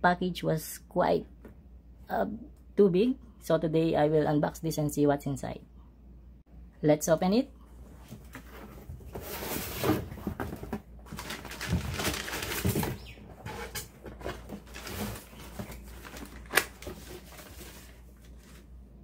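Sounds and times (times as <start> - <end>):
cardboard rustling: 8.0 - 18.8.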